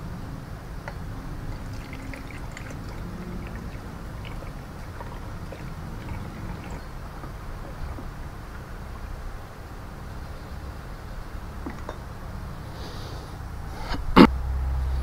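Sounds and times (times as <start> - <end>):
steady low hum: 0.0 - 15.0
water trickling and splashing: 1.4 - 8.6.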